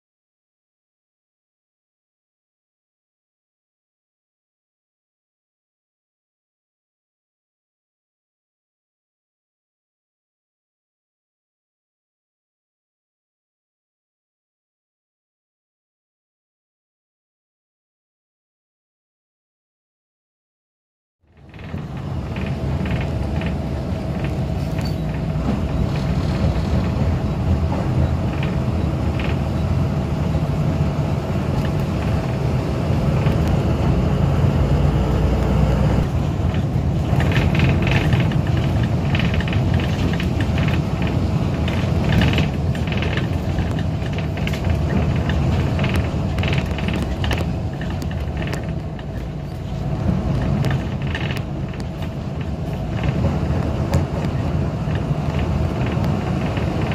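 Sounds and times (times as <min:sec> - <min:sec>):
bus engine and road rumble: 0:21.2 - 0:56.9
clicks and rattles: 0:36.5 - 0:56.9.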